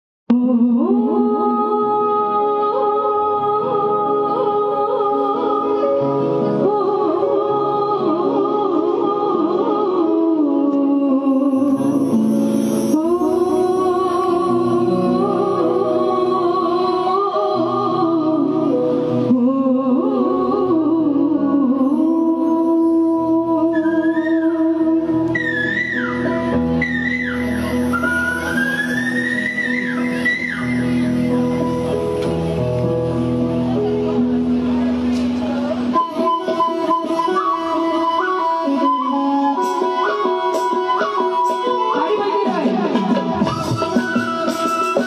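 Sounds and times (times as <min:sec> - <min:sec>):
woman singing: 0:00.3 - 0:26.3, 0:35.9 - 0:45.0.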